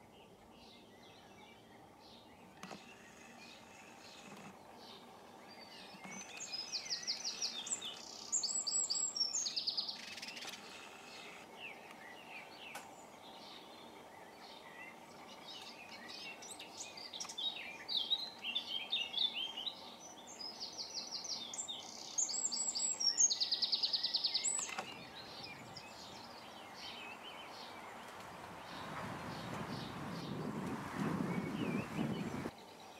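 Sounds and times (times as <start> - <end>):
songbird warbling and trilling: 0.2 - 32.5.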